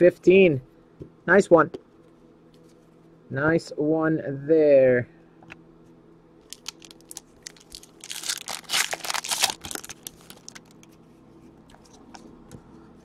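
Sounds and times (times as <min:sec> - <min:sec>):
foil wrapper crinkling: 0:06.4 - 0:10.9.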